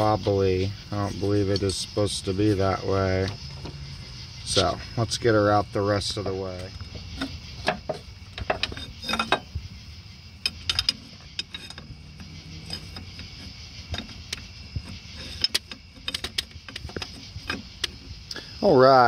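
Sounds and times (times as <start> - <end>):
insects droning: 0.0 - 19.0
metallic clicks and knocks: 6.0 - 9.7, 10.4 - 18.2.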